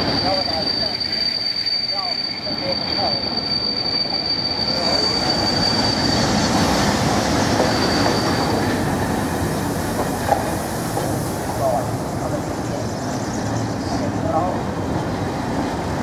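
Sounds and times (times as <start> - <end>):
high wheel squeal: 0.0 - 15.7
train wheels rumbling on rail: 0.0 - 16.0.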